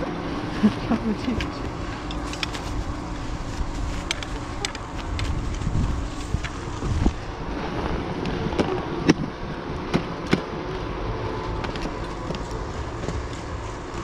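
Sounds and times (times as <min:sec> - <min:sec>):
steady background hum: 0:00.0 - 0:14.0
ski gear clicks and knocks: 0:02.1 - 0:02.8.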